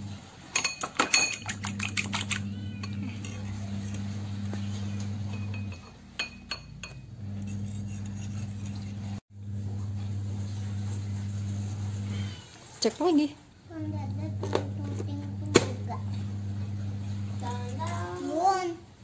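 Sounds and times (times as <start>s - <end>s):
utensil clinking against ceramic bowl: 0.5s - 9.2s
steady low hum: 1.5s - 12.5s, 13.7s - 18.2s.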